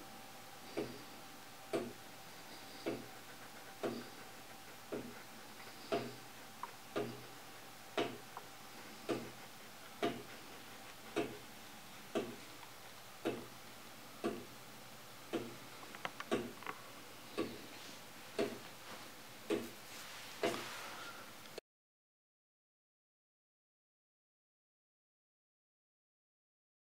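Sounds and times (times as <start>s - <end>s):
wooden clock ticking: 0.7s - 1.0s, 1.7s - 2.0s, 2.8s - 3.2s, 3.8s - 4.2s, 4.9s - 8.3s, 9.0s - 11.5s, 12.1s - 12.5s, 13.2s - 13.6s, 14.2s - 14.5s, 15.3s - 15.6s, 16.2s - 16.7s, 17.3s - 17.6s, 18.4s - 18.6s, 19.4s - 19.7s.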